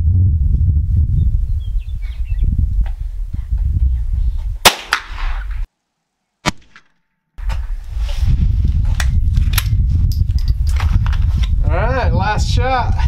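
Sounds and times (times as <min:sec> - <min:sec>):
steady low rumble: 0:00.0 - 0:04.7
rifle shot with echo: 0:04.6 - 0:05.4.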